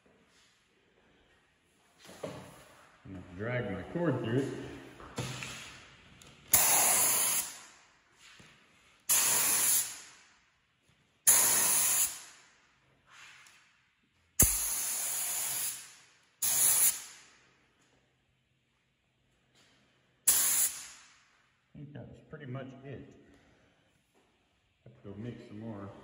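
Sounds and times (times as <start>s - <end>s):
spray gun hissing: 6.5s - 7.6s, 9.1s - 10.1s, 11.3s - 12.3s, 14.4s - 17.2s, 20.3s - 21.0s.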